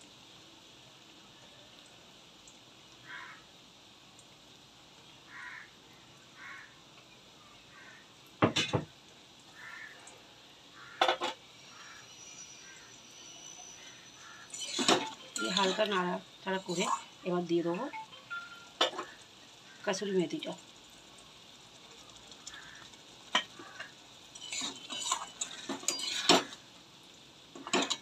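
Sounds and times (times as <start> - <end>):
crows cawing: 3.0 - 3.4, 5.3 - 5.7, 6.4 - 6.8, 7.7 - 8.1, 9.5 - 10.1, 10.7 - 12.9, 14.2 - 14.6, 22.5 - 23.9
metal utensil clattering on pan: 8.4 - 8.9, 11.0 - 11.4, 14.5 - 16.0, 18.8 - 19.1, 23.3 - 26.6, 27.6 - 28.0.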